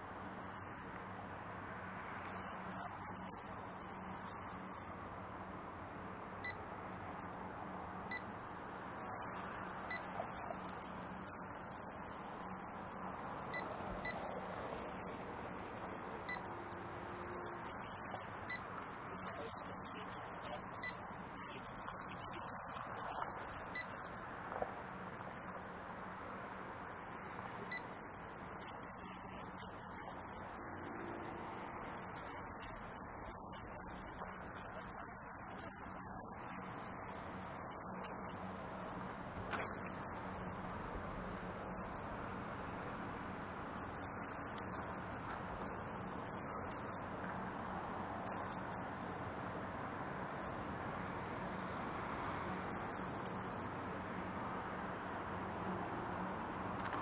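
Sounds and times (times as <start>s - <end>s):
steady low hum: 0.0s - 57.0s
checkout till beeps: 8.1s - 8.3s, 13.5s - 14.2s, 16.2s - 16.5s, 20.8s - 21.0s, 23.7s - 24.0s, 27.7s - 28.0s
small clicks: 56.7s - 57.0s.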